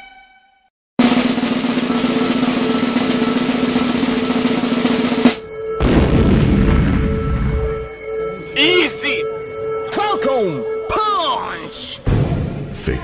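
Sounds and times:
heavy deep beat: 1.0s - 7.9s
music with drum roll: 1.0s - 7.9s.

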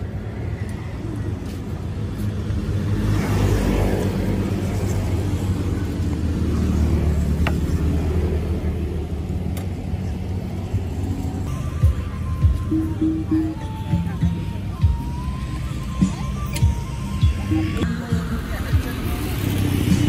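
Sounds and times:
vehicle passing: 0.0s - 11.7s, 17.5s - 20.0s
road traffic rumble: 0.0s - 20.0s.

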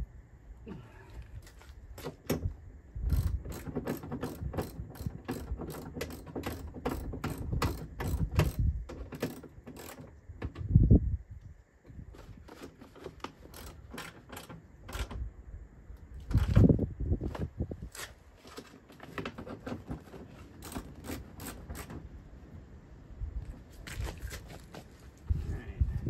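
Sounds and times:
ratchet wrench clicking: 3.1s - 10.0s, 13.5s - 15.1s, 20.6s - 21.9s.

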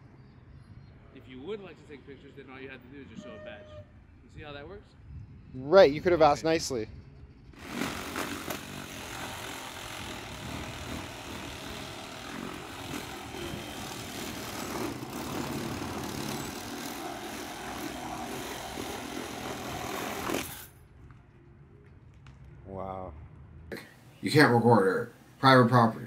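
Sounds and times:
engine drone: 7.5s - 20.6s.

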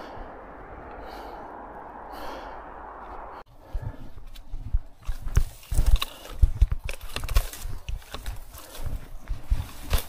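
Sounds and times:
footsteps on stony path: 3.4s - 10.0s.

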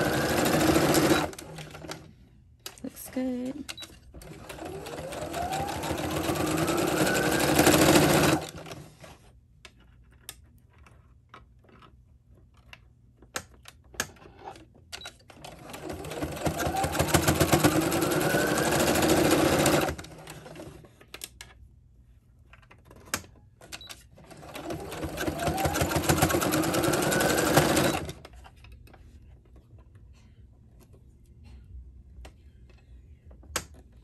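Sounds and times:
sewing machine stitching: 0.0s - 2.0s, 4.2s - 9.1s, 15.3s - 20.8s, 24.2s - 28.3s.

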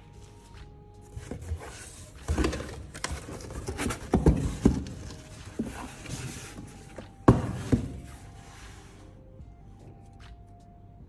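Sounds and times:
cardboard scraping: 1.1s - 9.2s.

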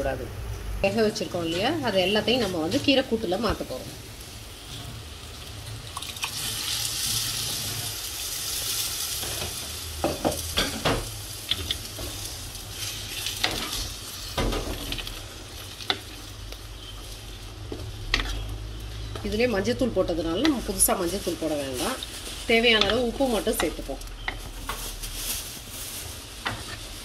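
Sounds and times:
food sizzling in hot pot: 0.9s - 27.0s
wooden spoon stirring: 12.8s - 27.0s
spoon knocking and scraping pots: 22.8s - 24.8s.

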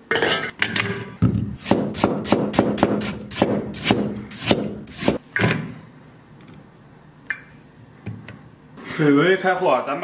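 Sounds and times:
cleaver chopping on wooden block: 1.6s - 5.2s.

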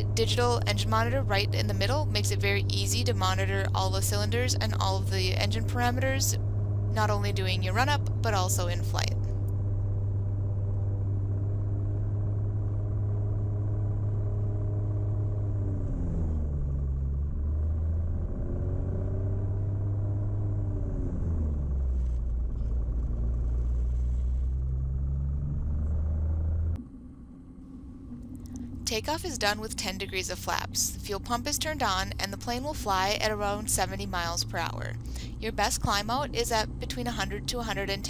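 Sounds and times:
aircraft engine heard from cabin: 0.0s - 38.0s.

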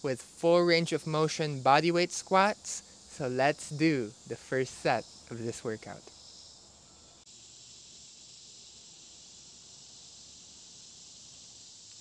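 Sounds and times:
high-pitched hiss: 0.0s - 12.0s.

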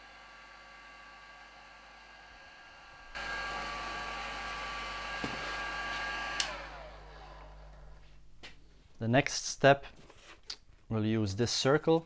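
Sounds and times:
heat gun blowing: 0.0s - 8.2s
heat gun switch click: 6.4s - 6.6s.

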